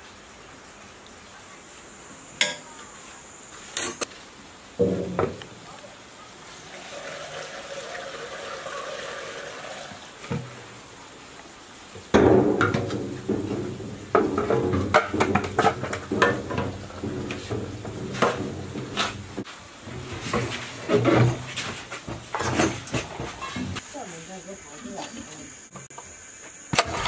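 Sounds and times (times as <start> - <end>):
fuel trickling through funnel: 6.6 - 10.2
irregular knocks and clatter: 12.0 - 23.8
thump: 12.1 - 19.1.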